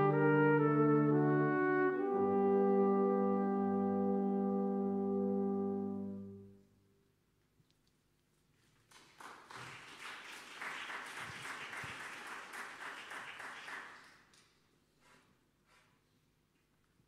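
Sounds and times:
audience applause: 8.8 - 14.3.

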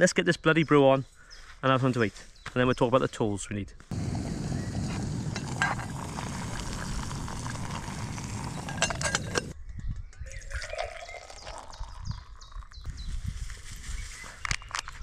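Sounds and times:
gas stove burner roaring: 3.9 - 9.5
water poured into metal mug: 4.7 - 9.6, 10.4 - 12.8
metal lid clinks: 8.6 - 9.6.

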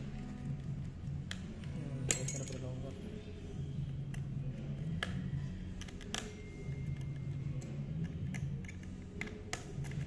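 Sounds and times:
screwdriver clicking on metal: 6.9 - 10.0.

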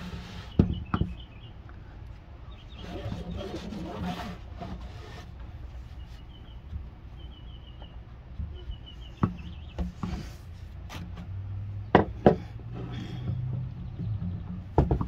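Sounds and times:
knocks on wooden workbench: 11.9 - 12.5, 14.3 - 15.0.

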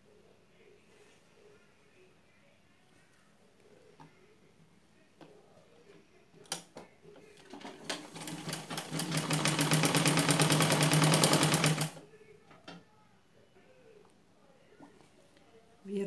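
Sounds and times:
sewing machine stitching: 7.4 - 12.0
sewing machine sharp clicks: 7.6 - 12.0.

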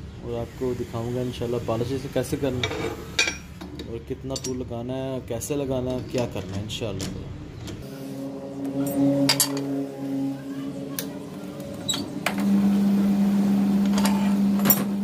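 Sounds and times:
metal lathe running: 7.8 - 15.0.

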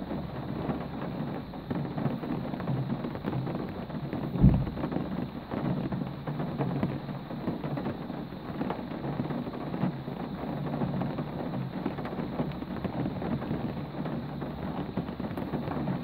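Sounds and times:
steady rain patter: 0.0 - 16.0
low rumble: 4.4 - 4.9.

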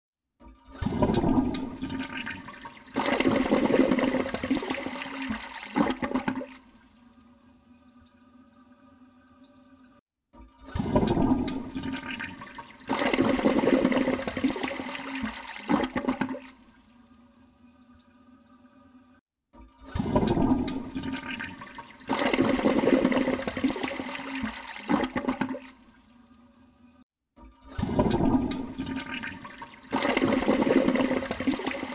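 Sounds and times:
water splashing in plastic tub: 0.4 - 6.9, 10.4 - 16.6, 19.5 - 25.8, 27.4 - 31.9.

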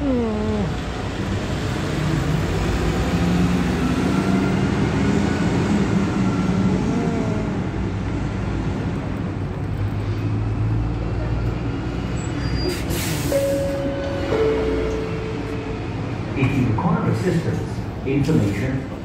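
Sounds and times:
bus engine drone: 0.0 - 19.0
traffic noise: 0.0 - 19.0
faint squeal: 12.2 - 13.8.

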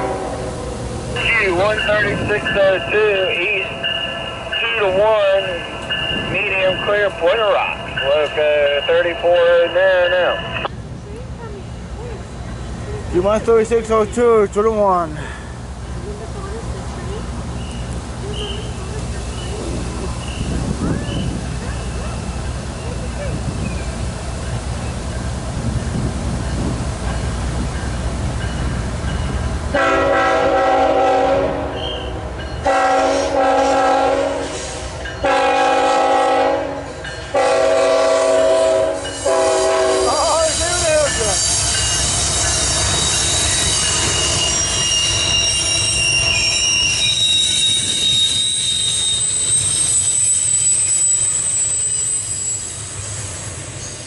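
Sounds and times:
train horn blasts: 0.0 - 0.6, 29.7 - 40.6
train rumbling past: 0.0 - 54.0
wheels squealing: 40.1 - 54.0.

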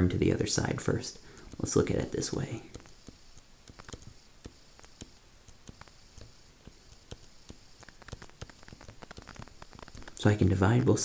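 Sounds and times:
stylus tapping on tablet screen: 1.2 - 2.0, 2.6 - 10.2.

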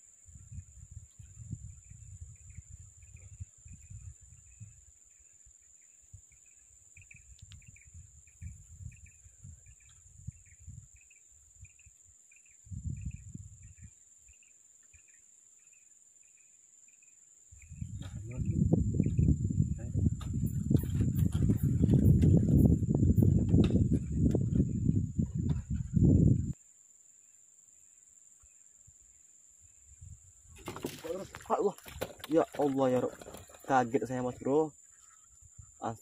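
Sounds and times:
insect chirps: 0.0 - 36.0.

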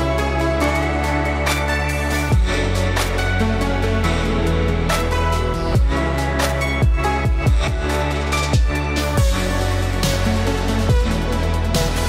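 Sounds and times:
electronic music with deep bass: 0.0 - 12.0.

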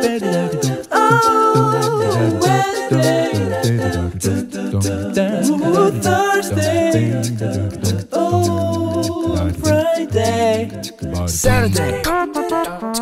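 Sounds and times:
layered singing voices: 0.0 - 13.0
low bass line: 6.8 - 12.2.

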